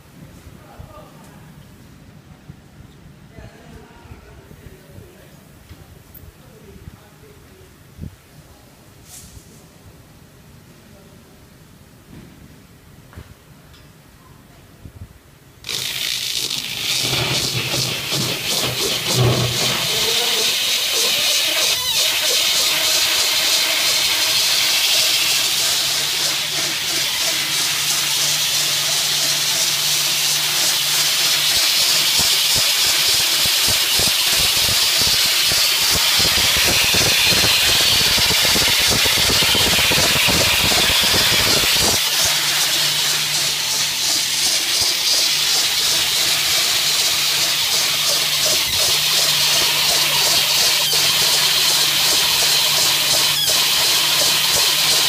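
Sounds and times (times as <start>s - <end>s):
tape film hissing over rollers: 15.6s - 55.0s.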